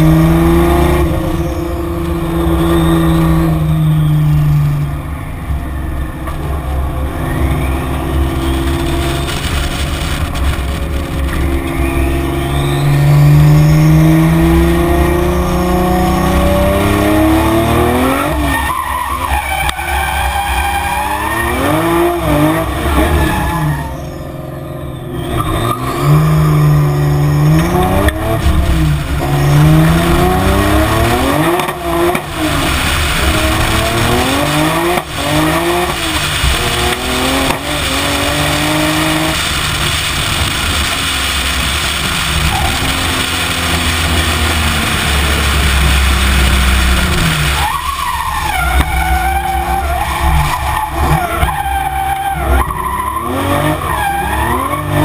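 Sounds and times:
car engine revving: 0:00.0 - 0:55.0
tyres squealing: 0:41.1 - 0:55.0.

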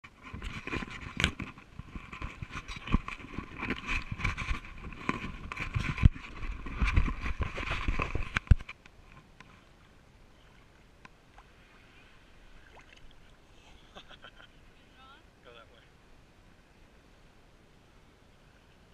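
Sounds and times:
muffled water sloshing: 0:00.1 - 0:14.7.

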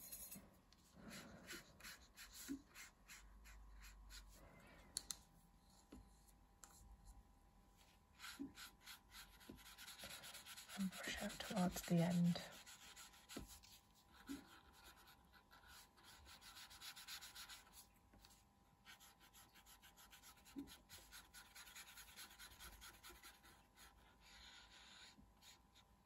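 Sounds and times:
paintbrush rubbing on paper: 0:01.1 - 0:04.4, 0:07.8 - 0:25.6.

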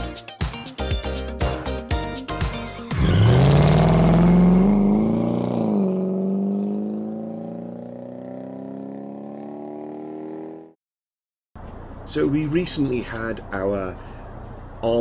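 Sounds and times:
car engine accelerating: 0:02.9 - 0:10.7.

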